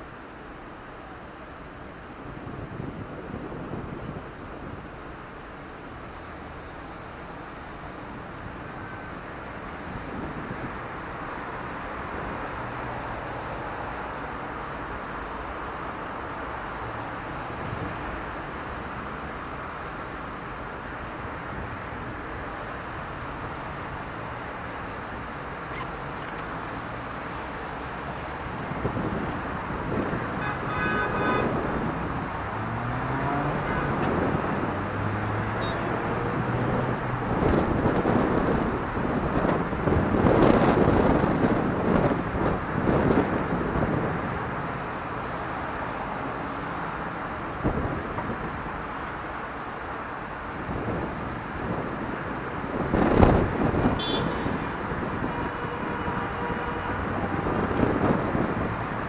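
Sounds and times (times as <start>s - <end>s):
cars passing: 5.3s - 59.0s
vehicle engine passing nearby: 32.4s - 37.6s.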